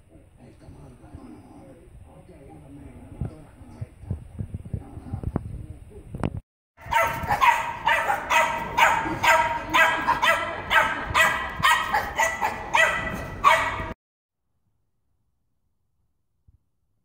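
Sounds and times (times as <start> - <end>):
small dog yapping: 6.8 - 13.9.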